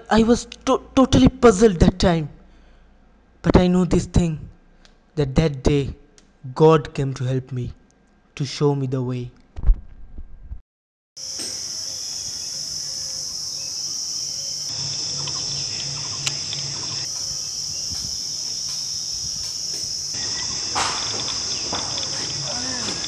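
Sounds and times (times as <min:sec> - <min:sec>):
faint chirps: 0:11.2 - 0:23.0
high-pitched insect buzz: 0:11.2 - 0:23.0.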